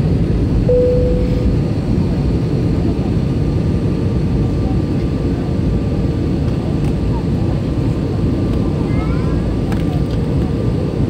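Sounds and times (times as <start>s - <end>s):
jet engines droning: 0.0s - 6.8s
short steady tone: 0.7s - 1.8s.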